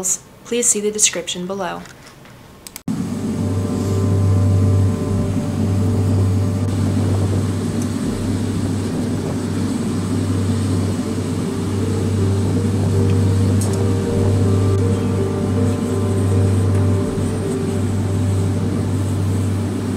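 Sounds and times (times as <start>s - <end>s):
gas forge burner rumbling: 2.9s - 19.9s.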